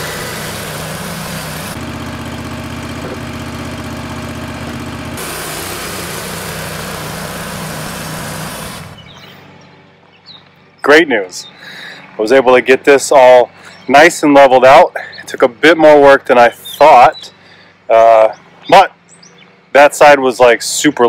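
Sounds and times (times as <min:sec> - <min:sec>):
bandsaw mill cutting log: 0:00.0 - 0:09.2.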